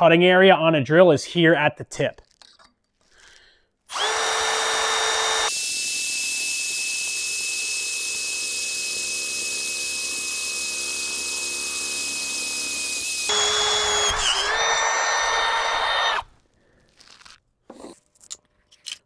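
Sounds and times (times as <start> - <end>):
electric drill boring through steel: 3.9 - 16.3.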